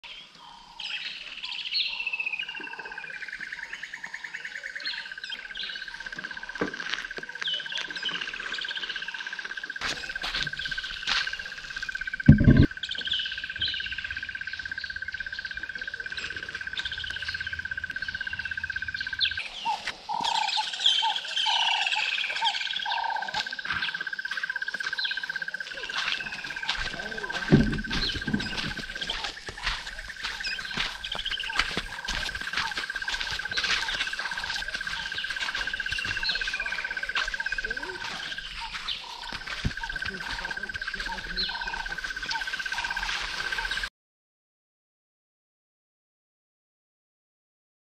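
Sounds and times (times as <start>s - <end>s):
wild birds calling: 0.0s - 43.9s
low thump: 12.3s - 12.7s, 27.4s - 28.8s.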